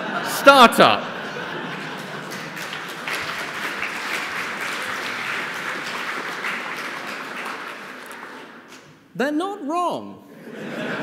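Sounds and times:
audience laughing: 0.0s - 7.3s, 10.3s - 11.0s
audience applauding: 0.5s - 8.8s.

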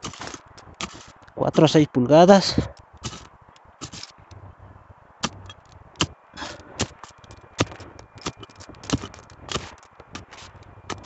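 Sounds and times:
digging tool chopping dry soil: 0.0s - 1.7s, 3.0s - 4.2s, 5.2s - 11.0s.

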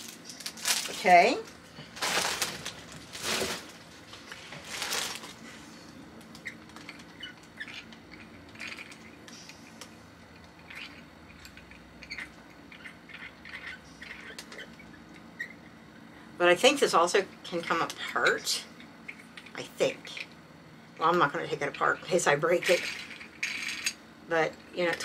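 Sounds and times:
packaging rustling: 0.0s - 1.2s, 1.8s - 5.6s.

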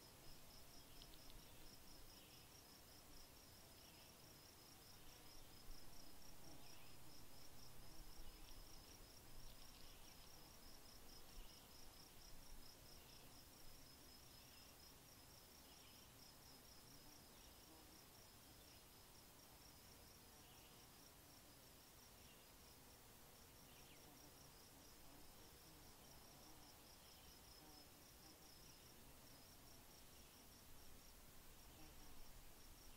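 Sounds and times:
softer insect chirps: 0.3s - 2.6s, 5.0s - 11.8s.

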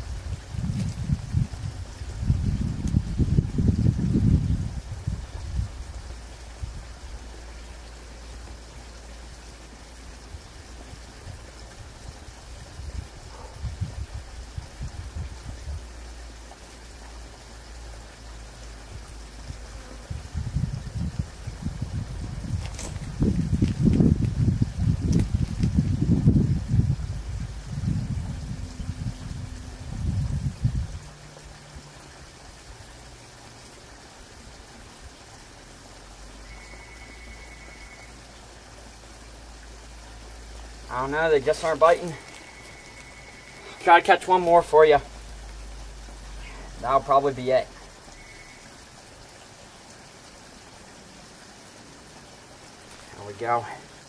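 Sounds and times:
wind buffeting microphone: 0.0s - 7.3s, 10.4s - 16.0s, 18.8s - 31.6s
steady outdoor hiss: 0.0s - 54.0s.

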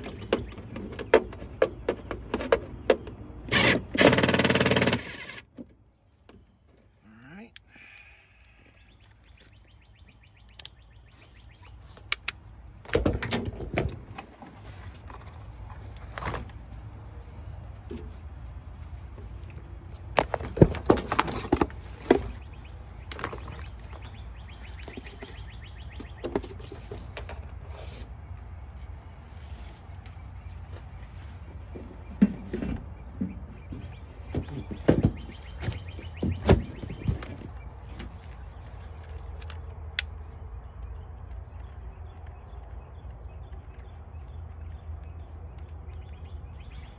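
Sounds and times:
hand tools clicking and knocking: 0.0s - 5.4s.

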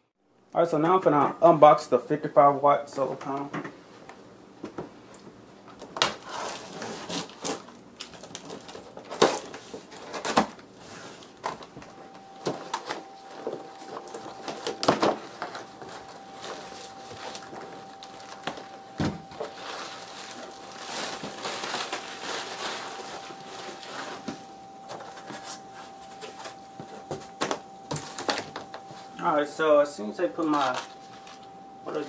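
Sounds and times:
plastic wrap rustling: 6.0s - 29.2s, 30.2s - 32.0s
faint steady tone: 11.5s - 32.0s.

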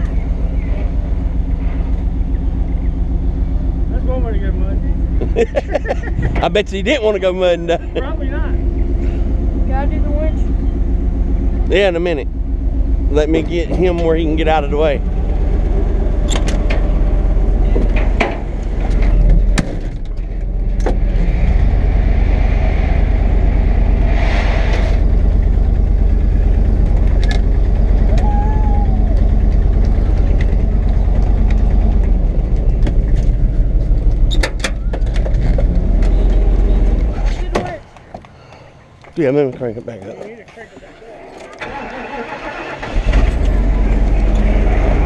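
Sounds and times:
truck engine running: 0.0s - 45.0s.

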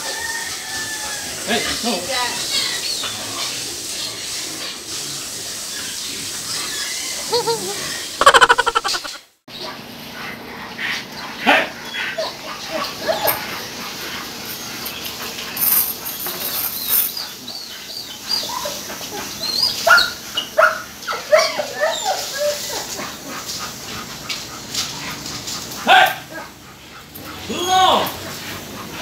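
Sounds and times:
dogs whimpering and yelping: 6.6s - 29.0s.

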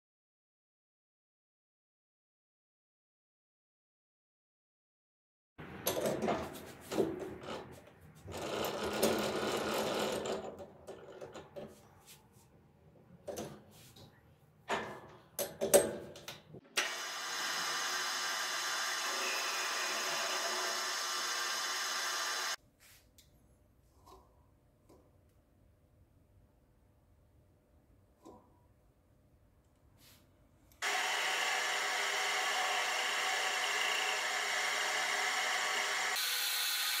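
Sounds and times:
lathe running: 16.8s - 22.6s, 30.8s - 37.0s.

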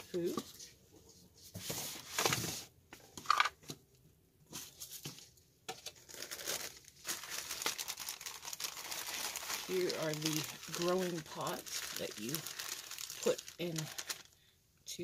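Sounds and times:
plastic bag crinkling: 5.8s - 14.4s.

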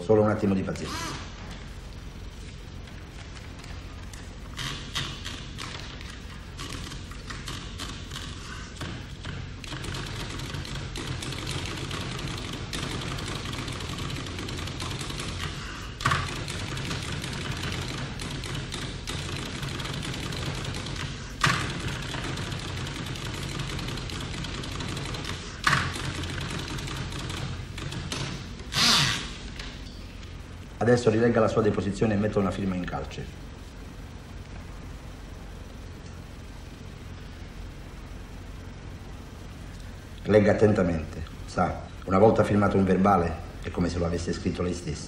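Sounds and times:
typewriter keystroke clacks: 5.0s - 28.4s.

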